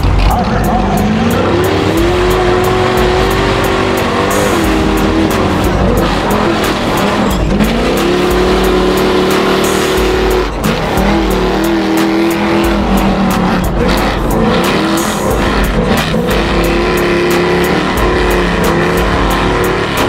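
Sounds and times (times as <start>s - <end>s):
truck engine revving hard: 0.0s - 20.0s.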